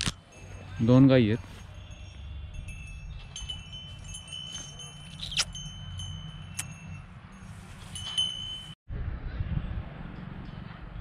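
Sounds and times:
small metal bell ringing: 0:00.2 - 0:08.8.

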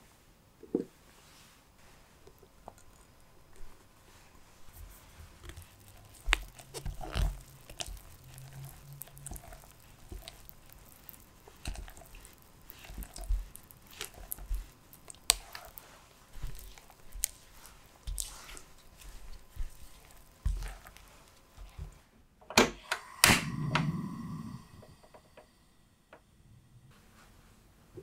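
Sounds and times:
batter squelching: 0:01.2 - 0:22.1.

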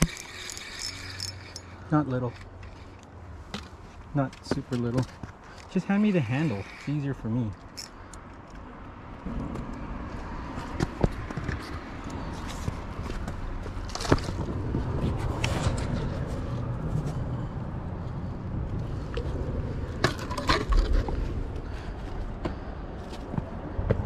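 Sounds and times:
steady low rumble: 0:08.6 - 0:24.0.

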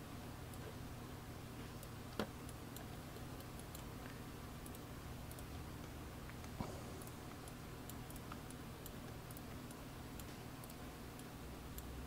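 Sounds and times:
low steady hum: 0:00.0 - 0:12.0
computer mouse clicking: 0:04.6 - 0:12.0.

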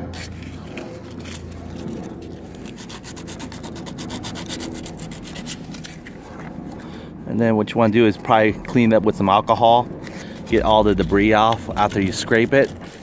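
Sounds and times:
sandpaper scratching metal: 0:00.0 - 0:06.4, 0:10.0 - 0:13.0.

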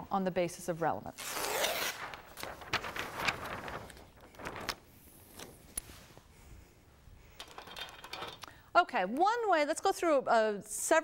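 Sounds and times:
paper sheets rustling and crackling: 0:01.4 - 0:06.2.

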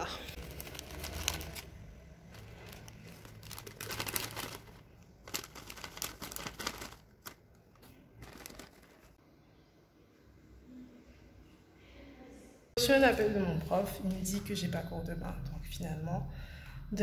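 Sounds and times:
plastic wrapping crinkling: 0:00.3 - 0:09.2.

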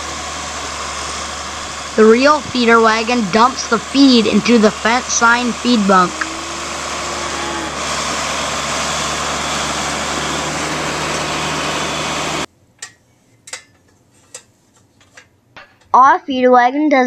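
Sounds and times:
tractor engine and machinery drone: 0:00.0 - 0:12.5.

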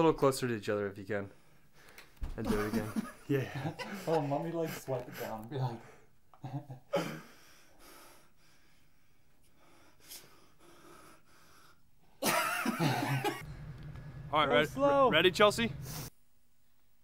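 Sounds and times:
person breathing: 0:07.1 - 0:12.1, 0:15.8 - 0:16.2.

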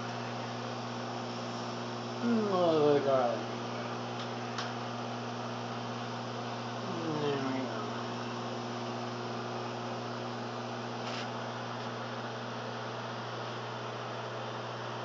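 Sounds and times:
fan air hissing: 0:00.0 - 0:13.5
microwave oven humming: 0:00.0 - 0:15.0.

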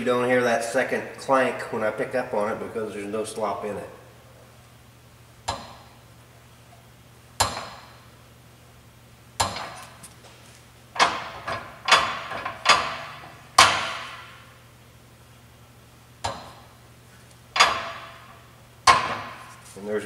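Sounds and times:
metal linkage clanking: 0:11.0 - 0:14.4, 0:17.6 - 0:19.5.

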